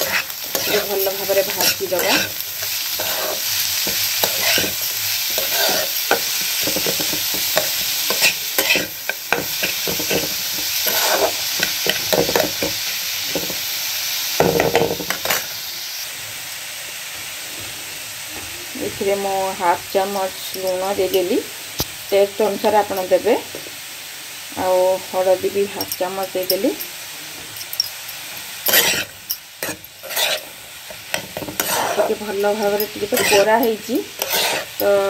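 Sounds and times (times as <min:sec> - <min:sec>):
spatula scraping a pan: 0:00.0 - 0:13.6, 0:28.6 - 0:35.0
vegetables sizzling in oil: 0:00.0 - 0:35.0.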